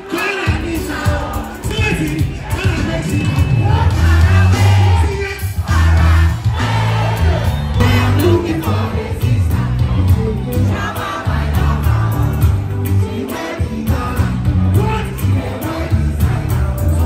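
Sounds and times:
crowd noise: 0.0s - 17.0s
loud amplified band: 0.0s - 17.0s
heavy pulsing bass line: 2.2s - 17.0s
person singing into microphone: 7.8s - 17.0s.

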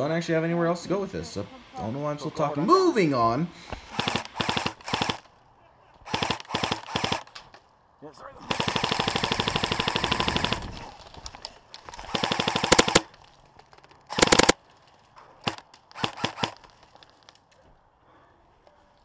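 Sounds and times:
airsoft guns firing bursts: 3.9s - 5.3s, 6.1s - 7.3s, 8.4s - 10.9s, 12.0s - 13.1s, 14.1s - 14.6s, 15.4s - 16.8s.

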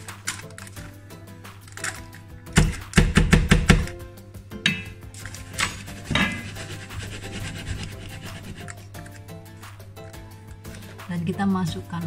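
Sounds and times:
metal pan knocking on countertop: 2.6s - 3.9s, 4.6s - 5.1s, 6.0s - 6.6s.

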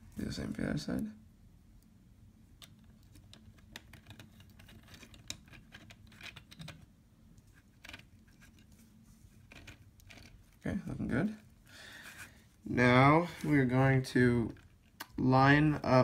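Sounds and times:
plastic parts clicking and tapping: 2.6s - 6.9s.

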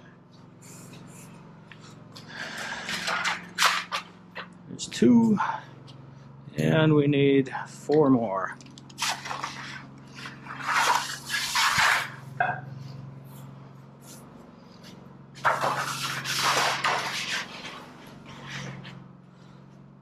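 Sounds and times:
generator humming: 0.0s - 20.0s
sheet metal scraping: 2.4s - 4.1s, 9.0s - 12.4s, 15.4s - 19.0s.

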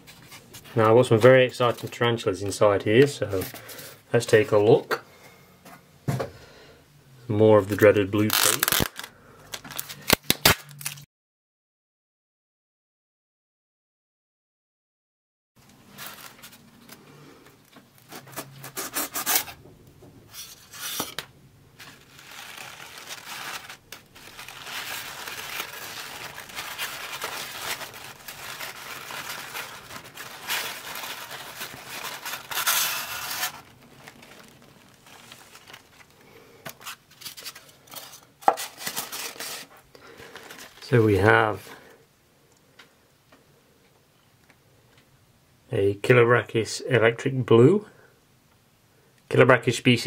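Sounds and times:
polystyrene rubbing and scraping: 8.2s - 10.9s, 18.0s - 19.6s, 20.3s - 21.2s, 21.8s - 41.8s
tissue paper rustling: 15.7s - 17.1s, 21.8s - 41.7s.

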